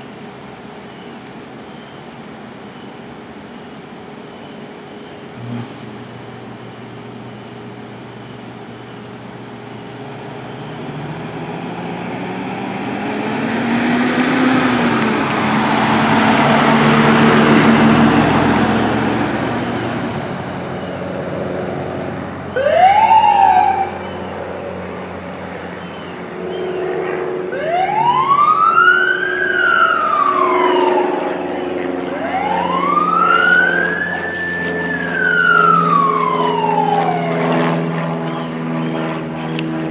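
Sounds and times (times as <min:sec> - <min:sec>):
pickup engine and tyres: 0:00.0 - 0:27.3
electronic siren whoop and wail: 0:10.2 - 0:21.5, 0:22.4 - 0:24.6, 0:25.8 - 0:39.8.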